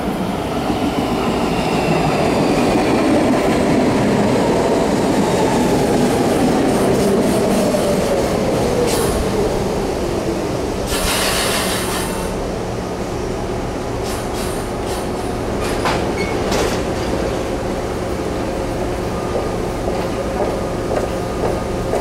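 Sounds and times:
train rumbling to a stop: 0.0s - 22.0s
brief hiss: 10.9s - 12.3s.

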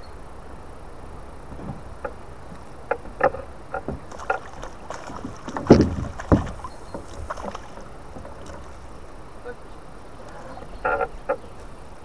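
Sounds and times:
knocks and clatter on boat hull: 2.9s - 8.8s
heavy thumps: 5.0s - 8.4s.

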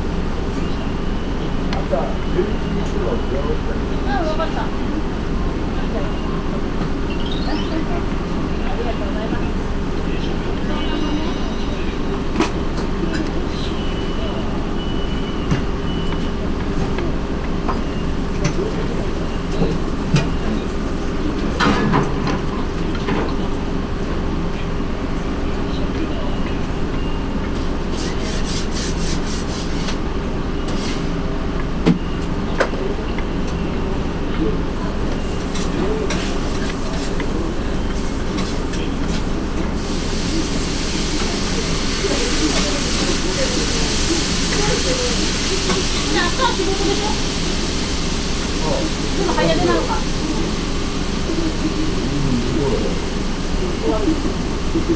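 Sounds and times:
low rumbling hum: 49.4s - 54.9s.

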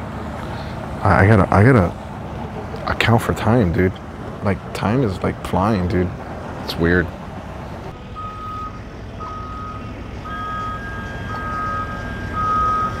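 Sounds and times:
low engine rumble: 0.0s - 13.0s
back-up alarm beeping: 8.2s - 13.0s.

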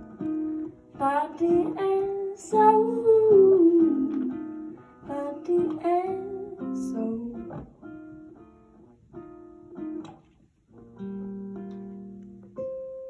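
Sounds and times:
guitar chords ringing: 0.0s - 13.0s.

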